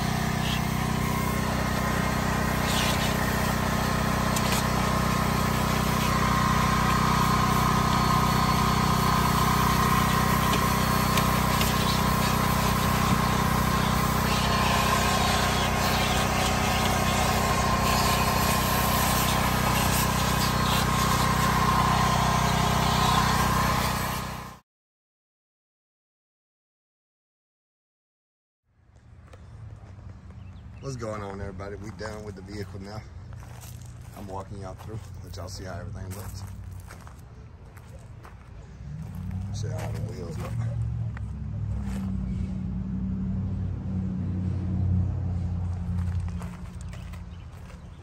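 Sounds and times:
vacuum cleaner running: 0.0 - 24.6.

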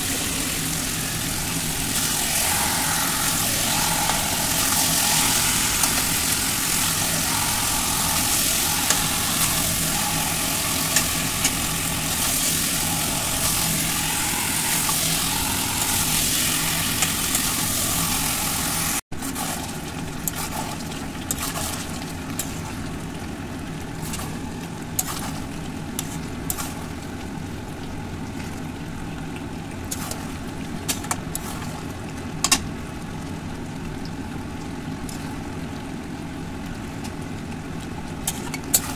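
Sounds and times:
curry sizzling in a pan: 0.0 - 19.0
low hum: 0.0 - 19.0.

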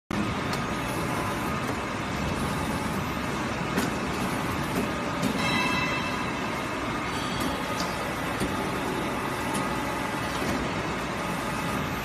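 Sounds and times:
pipe-bending machine running: 0.1 - 12.0.

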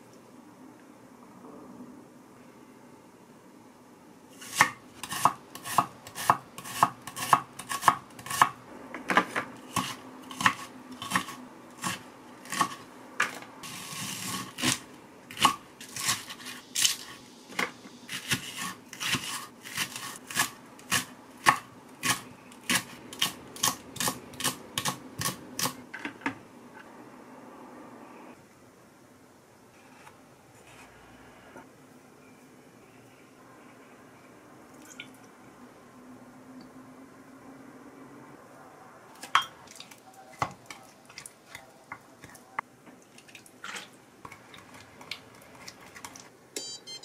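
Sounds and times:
knife scraping board: 13.6 - 17.2, 18.1 - 21.1.

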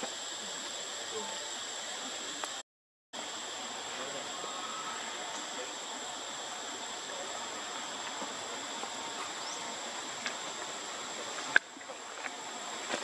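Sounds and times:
high insect drone: 0.0 - 2.6, 3.2 - 13.0
soft hiss: 0.0 - 2.6.

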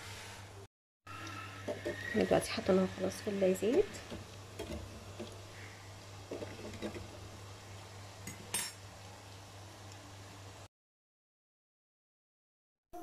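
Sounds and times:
oil sizzling in deep fryer: 1.6 - 10.7.

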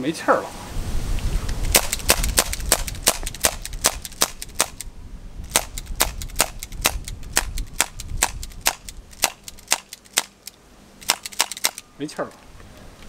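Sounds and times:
airsoft pistol shots snapping: 1.6 - 4.9, 5.5 - 10.4, 11.0 - 11.8.

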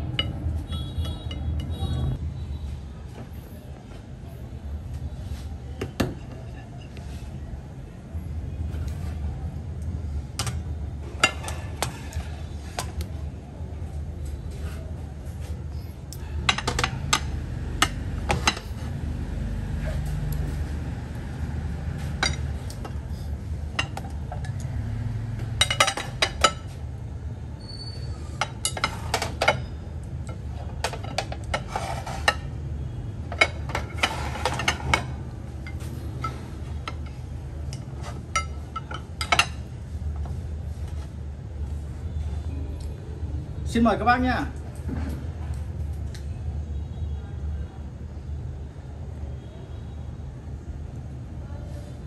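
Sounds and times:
ceramic plates clinking: 16.4 - 18.8, 22.0 - 23.0, 25.5 - 26.8, 28.2 - 32.5, 33.3 - 39.7.

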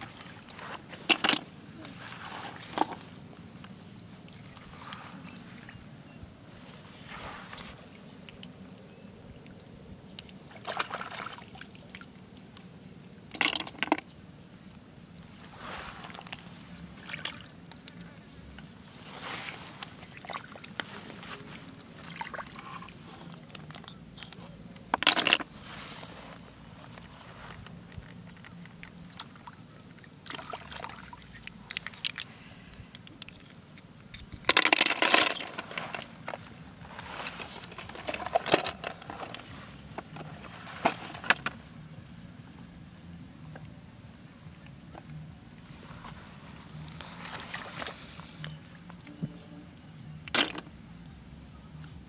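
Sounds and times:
snail shells clattering in bucket: 13.3 - 14.0, 34.5 - 36.1.

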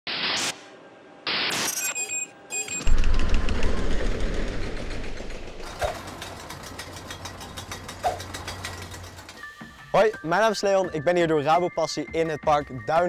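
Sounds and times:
low rumble: 2.9 - 7.7
fast even clacking: 2.9 - 10.2.

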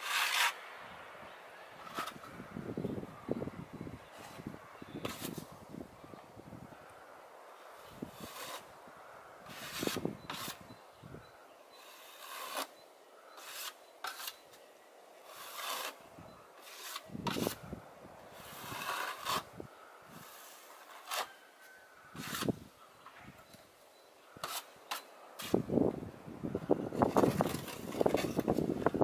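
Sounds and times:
hand float scraping wet stucco: 0.0 - 0.6, 5.0 - 5.5, 8.0 - 8.7, 9.4 - 10.6, 11.8 - 12.8, 13.4 - 14.4, 15.2 - 16.0, 16.6 - 17.7, 18.3 - 19.5, 20.1 - 21.4, 22.1 - 22.6, 24.4 - 25.7, 26.9 - 29.0.

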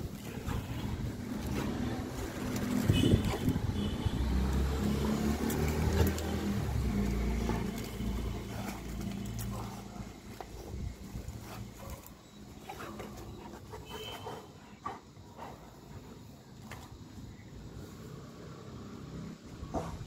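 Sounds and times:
crackles and clicks: 0.0 - 13.3
dog chewing coconut husk: 0.0 - 15.2.

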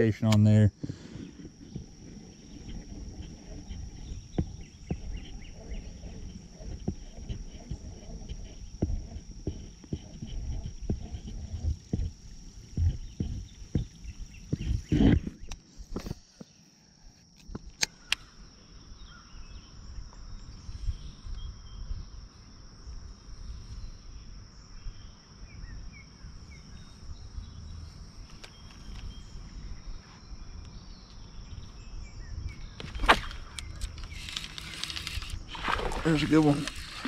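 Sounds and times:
high-pitched insect drone: 0.0 - 17.3, 17.9 - 37.0
sharp clicks: 0.2 - 0.6, 32.8 - 37.0.

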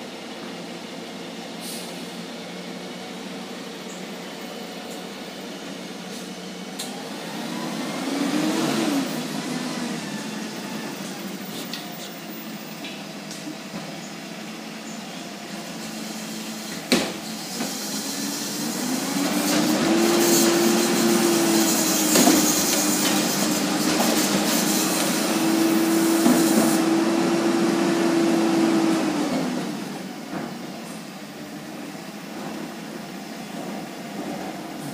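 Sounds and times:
garbage truck engine revving: 6.6 - 11.8, 15.7 - 30.3.

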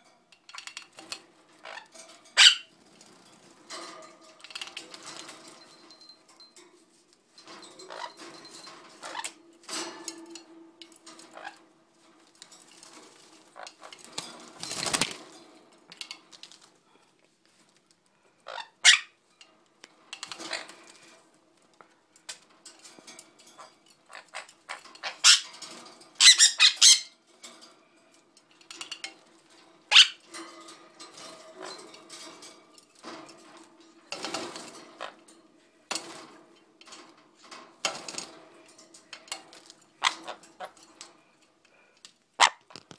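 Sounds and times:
wings flapping in water: 14.1 - 15.2.

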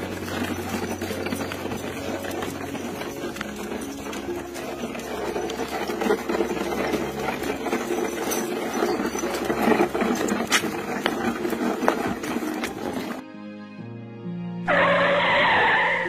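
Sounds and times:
wooden cart rattling on dirt: 0.0 - 13.2.

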